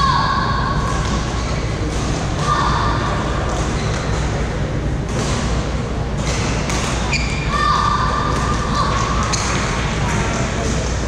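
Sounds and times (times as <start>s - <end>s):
sneakers squeaking on court: 3.5s - 4.3s, 6.2s - 7.6s
racket hitting shuttlecock: 5.1s - 7.4s.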